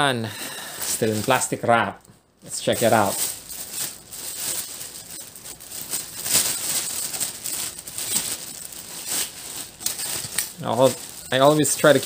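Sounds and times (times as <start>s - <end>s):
plastic wrap crinkling: 0.5s - 12.0s.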